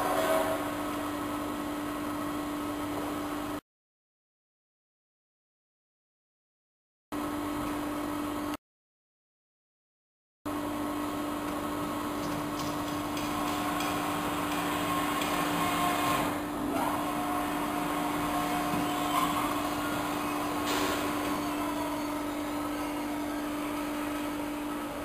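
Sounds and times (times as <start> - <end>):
industrial shredder humming: 10.5 - 25.0.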